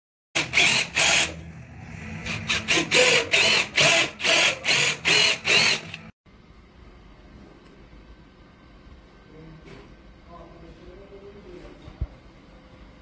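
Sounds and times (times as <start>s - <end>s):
cordless drill driving screws: 0.4s - 1.4s, 2.5s - 6.1s.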